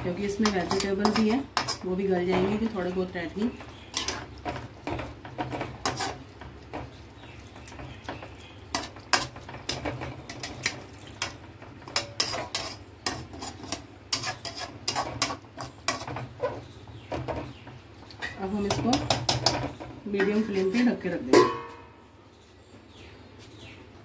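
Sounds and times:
metal spoon clinking against pot: 0.2 - 16.3, 21.3 - 21.9.

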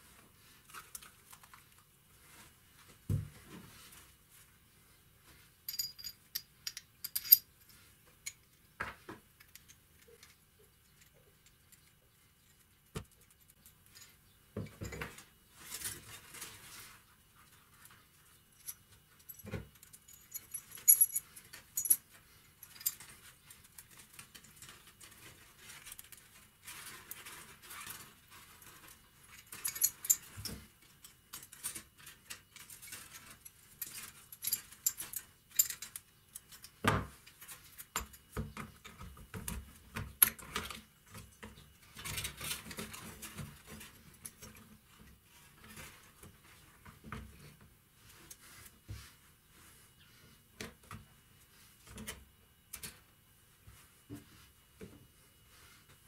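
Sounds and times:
metal parts clinking and rattling: 5.7 - 8.6, 18.6 - 26.2, 28.7 - 36.8.

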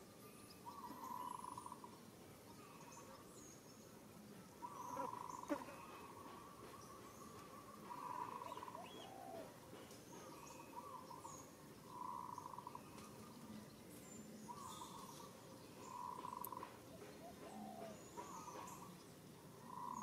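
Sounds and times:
faint bird chirps: 0.0 - 20.0
faint trilling bird call: 4.6 - 9.5, 10.4 - 13.3.

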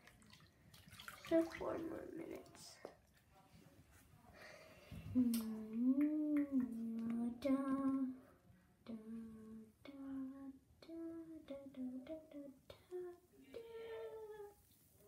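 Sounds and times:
child singing wordless tune: 5.2 - 14.7.

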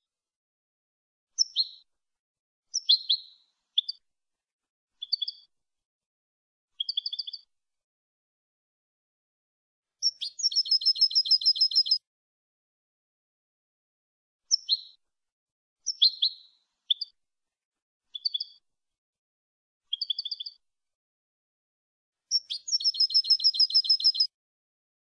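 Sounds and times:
goldfinch singing: 10.0 - 12.0, 22.3 - 24.3.

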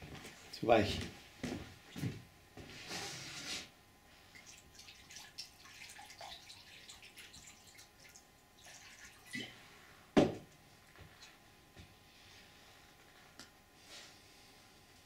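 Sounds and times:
loud knock: 10.2 - 10.4.

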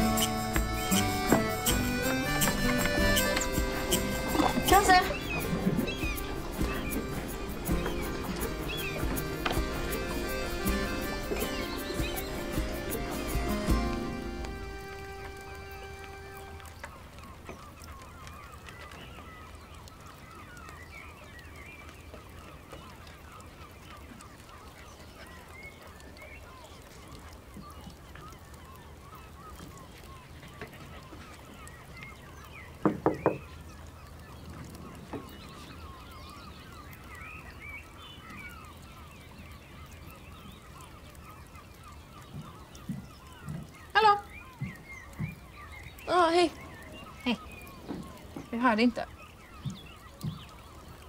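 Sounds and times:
birds calling: 0.0 - 51.0
knocks on glass door: 32.8 - 33.4.

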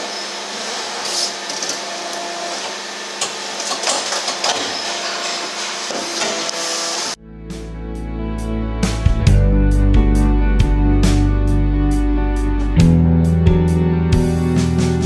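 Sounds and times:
hydraulic machine hum and hiss: 0.0 - 7.2
plucked guitar music: 7.4 - 15.0.

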